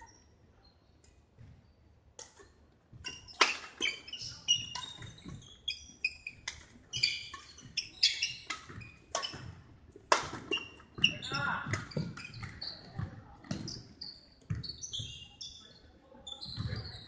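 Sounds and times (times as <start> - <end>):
sneakers squeaking on wooden floor: 2.4 - 17.0
rackets striking shuttlecock: 7.3 - 12.6.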